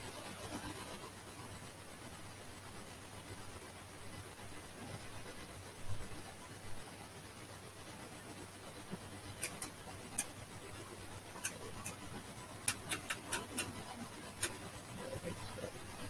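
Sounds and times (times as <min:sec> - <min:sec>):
rotary knobs clicking: 0:11.4 - 0:14.7.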